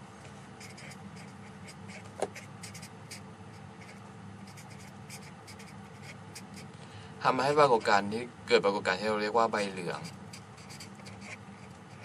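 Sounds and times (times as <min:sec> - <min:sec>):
steady low hum: 0:00.0 - 0:12.0
felt-tip marker scratching on paper: 0:00.6 - 0:06.7, 0:09.8 - 0:12.0.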